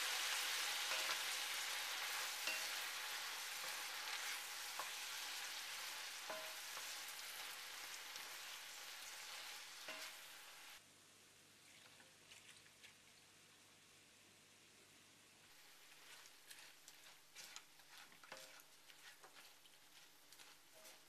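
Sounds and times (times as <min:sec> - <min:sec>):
prawns sizzling in hot oil: 0:00.0 - 0:10.8, 0:15.5 - 0:21.0.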